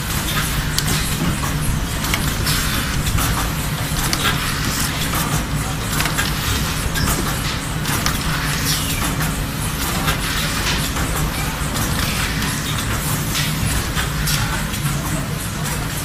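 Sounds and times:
machine humming and hissing: 0.0 - 16.0
light mechanical clicks and taps: 0.4 - 9.2.

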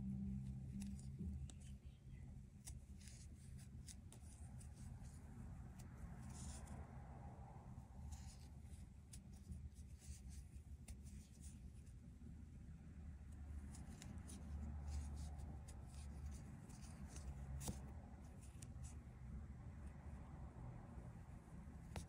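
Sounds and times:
low steady hum: 0.0 - 22.0
yarn scratching and rustling: 2.6 - 6.8, 8.0 - 12.0, 13.4 - 19.0.

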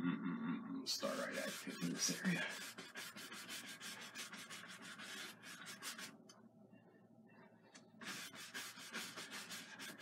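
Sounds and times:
paintbrush scrubbing on canvas: 0.9 - 6.2, 8.0 - 10.0.

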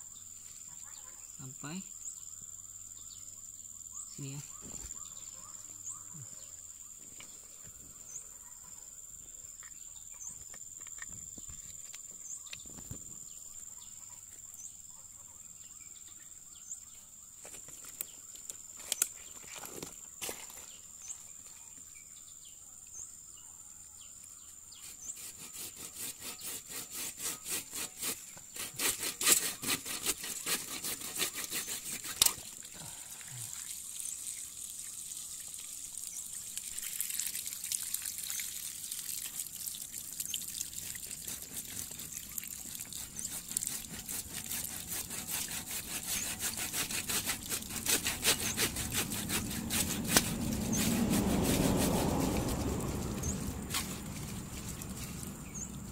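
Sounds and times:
hand saw cutting plastic pipe: 24.8 - 32.6, 40.9 - 52.6
water dribbling: 32.4 - 44.9.

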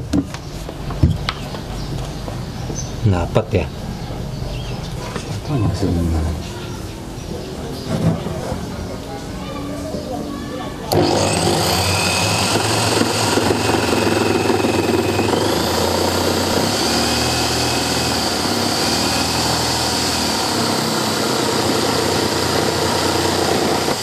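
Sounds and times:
jigsaw cutting wood: 10.9 - 24.0.

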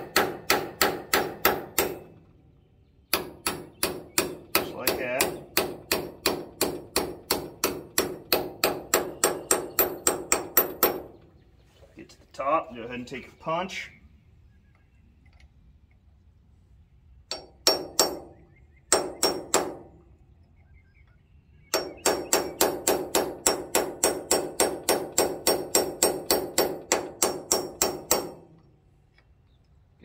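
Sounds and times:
hammer striking steel punch: 0.0 - 2.1, 3.1 - 11.1, 17.3 - 19.9, 21.7 - 28.5.

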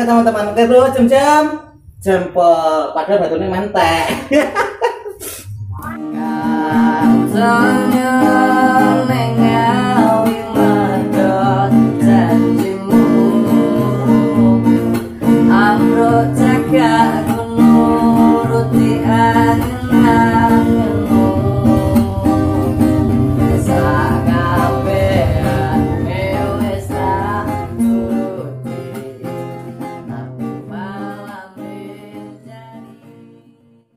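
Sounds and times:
man singing: 6.0 - 33.1
strummed acoustic guitar: 6.0 - 33.9.

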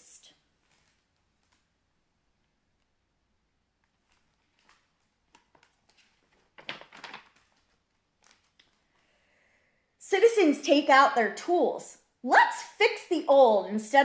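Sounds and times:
book pages turning: 0.6 - 1.8, 3.8 - 9.0
paper rustle: 0.6 - 1.8, 3.8 - 9.0.

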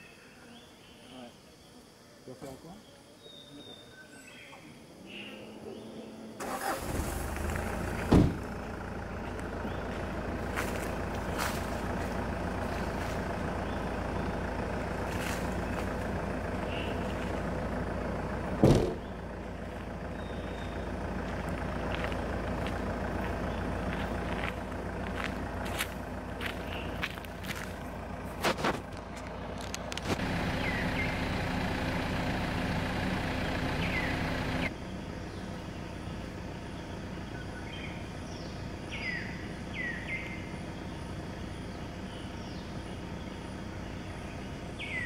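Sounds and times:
car engine starting and idling: 5.0 - 45.0
car door slamming: 7.7 - 8.6, 18.5 - 19.2.

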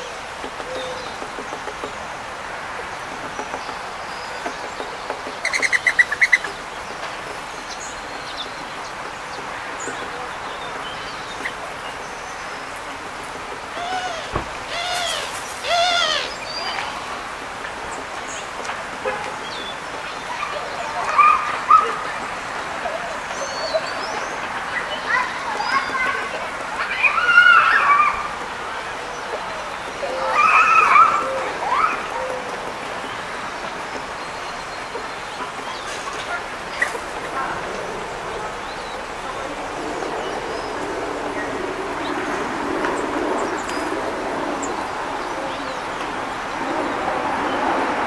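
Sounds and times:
wild birds calling and chirping: 0.0 - 18.5
steady background noise: 0.0 - 48.0.

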